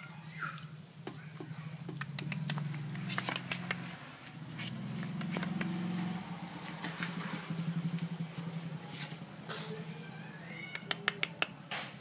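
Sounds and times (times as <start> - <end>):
puppy claws clicking on wood: 0.6 - 5.8, 10.7 - 12.0.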